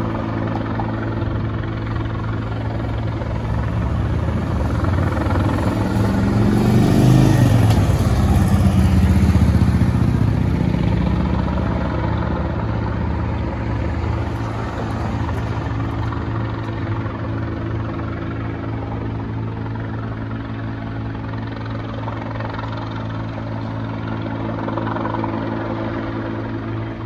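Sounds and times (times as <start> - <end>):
distant helicopter hovering: 0.0 - 27.0
vehicle passing by: 2.9 - 17.3.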